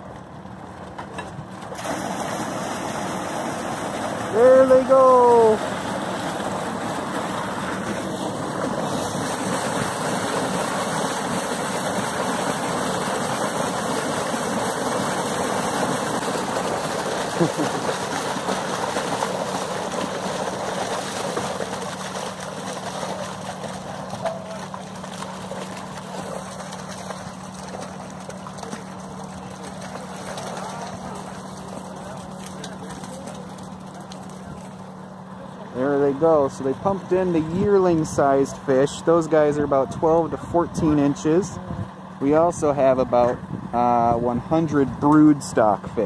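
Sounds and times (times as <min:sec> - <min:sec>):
low steady hum: 0:00.0 - 0:46.0
water gushing and splashing: 0:01.4 - 0:35.0.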